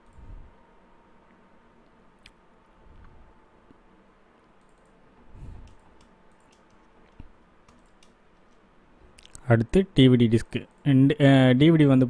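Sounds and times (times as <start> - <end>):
thin steady hum: 0.0 - 12.0
computer mouse clicks: 4.6 - 5.0, 5.6 - 8.6.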